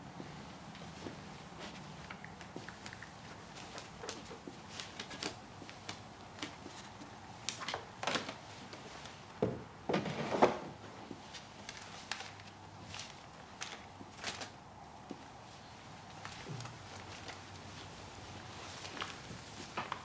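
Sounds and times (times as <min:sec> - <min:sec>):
drawers and cupboard doors: 0:09.4 - 0:11.0.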